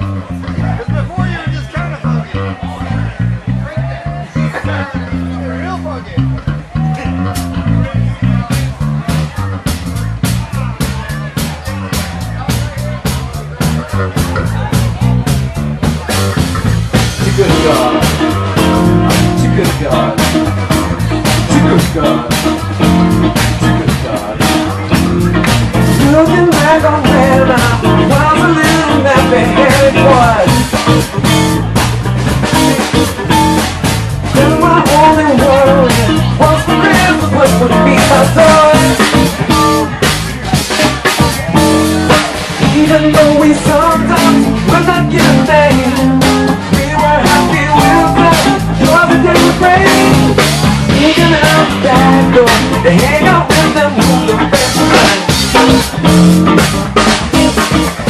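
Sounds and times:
funk band playing: 0.0 - 58.0
man singing: 15.9 - 31.4, 34.2 - 56.2.

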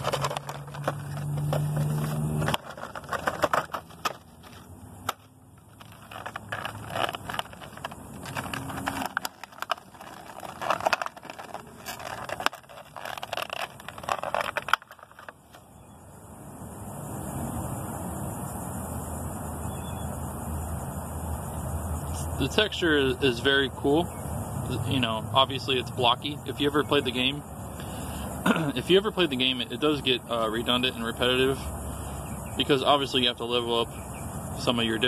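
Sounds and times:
plastic and cardboard crinkling: 0.0 - 15.6.

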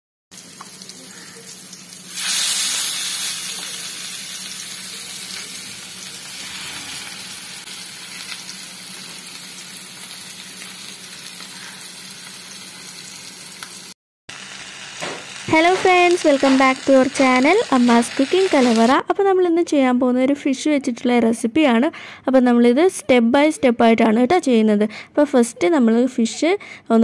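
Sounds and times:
food sizzling in hot oil: 0.3 - 19.0.

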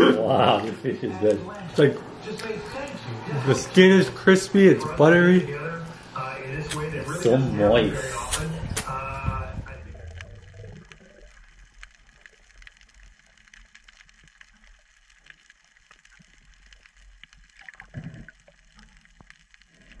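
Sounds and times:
low underwater rumble: 7.8 - 20.0
water gurgle: 7.9 - 20.0
faint reef clicks and crackles: 8.4 - 20.0.

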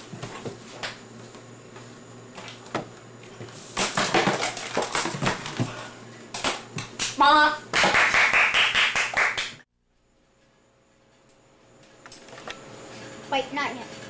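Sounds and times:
objects clattering: 3.8 - 5.8.

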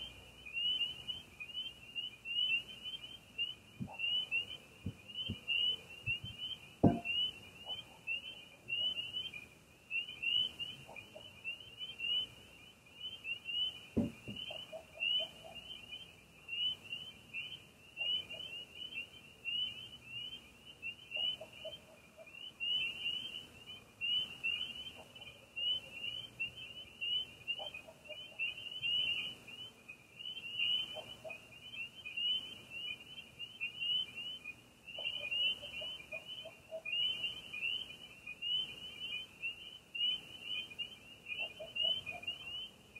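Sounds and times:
frogs calling: 0.0 - 42.9
sharp knock: 6.8 - 7.1, 14.0 - 14.5.

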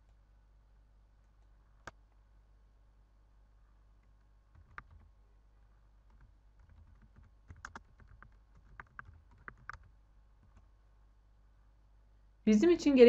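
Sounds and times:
typing on computer keyboard: 4.5 - 5.1, 6.1 - 10.7.

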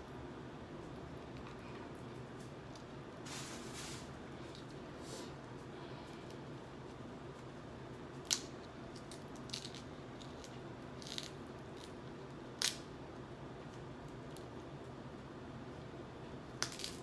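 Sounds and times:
crab shells cracking: 8.1 - 12.9, 16.5 - 17.0.

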